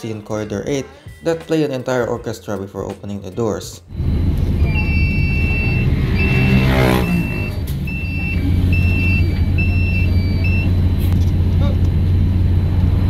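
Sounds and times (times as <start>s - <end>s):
bus engine drone: 3.9s - 13.0s
two-tone door warning chime: 4.0s - 11.0s.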